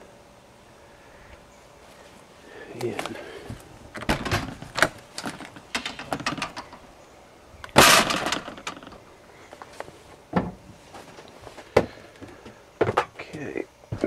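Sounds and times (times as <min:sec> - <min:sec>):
loud metal clatter: 0:07.8 - 0:09.0
door thump: 0:10.4 - 0:10.6.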